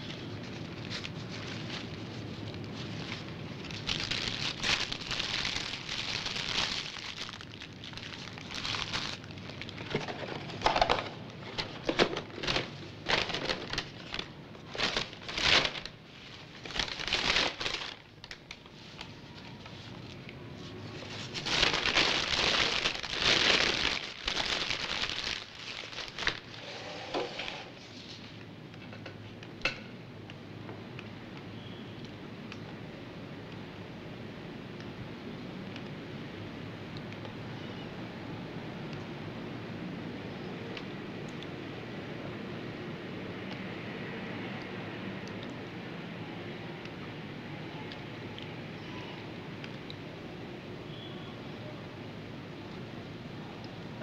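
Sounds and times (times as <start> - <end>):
paper wrappers crinkling: 0.0 - 28.4.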